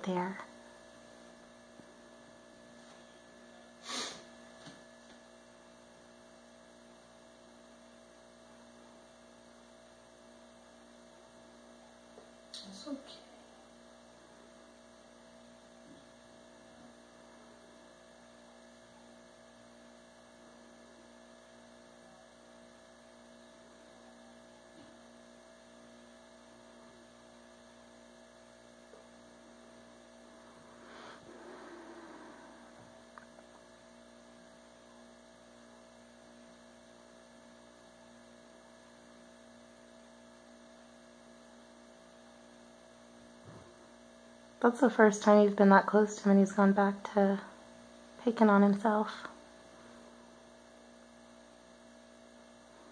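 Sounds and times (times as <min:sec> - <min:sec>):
electrical hum: 0:00.0 - 0:52.9.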